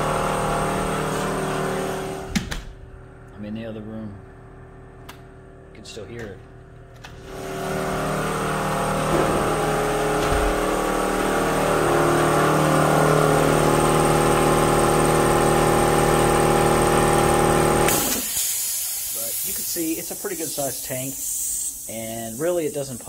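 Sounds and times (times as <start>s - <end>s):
air compressor running: 0.0s - 3.3s, 6.4s - 23.0s
air hissing out: 17.9s - 23.0s.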